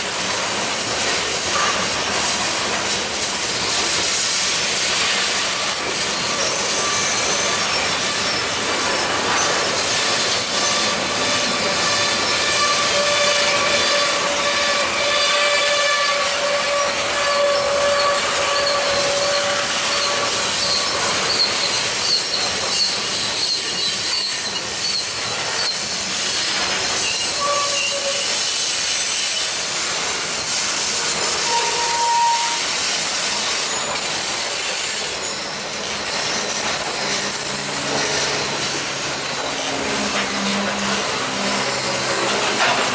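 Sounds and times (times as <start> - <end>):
train wheels rolling on rails: 0.0 - 42.9
high wheel squeal: 4.2 - 42.9.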